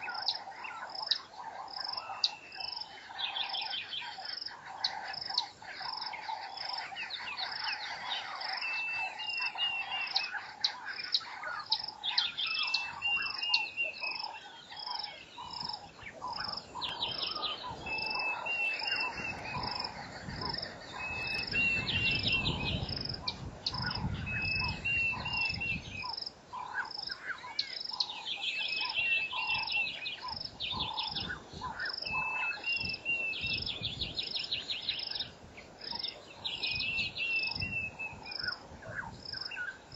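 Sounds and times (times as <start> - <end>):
pulsing high insect chirp: 0.0 - 39.9
trilling bird phrase: 4.7 - 34.1.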